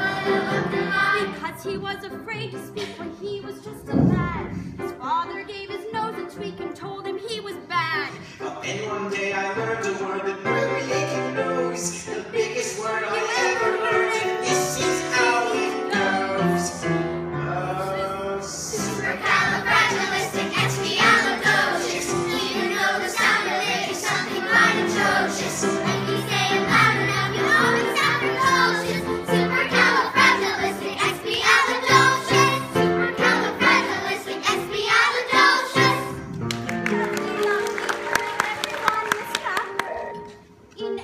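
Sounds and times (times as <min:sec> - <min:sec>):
children singing: 0:00.0 - 0:01.4, 0:10.0 - 0:16.9, 0:17.5 - 0:36.2
show tune singing with music: 0:00.0 - 0:41.0.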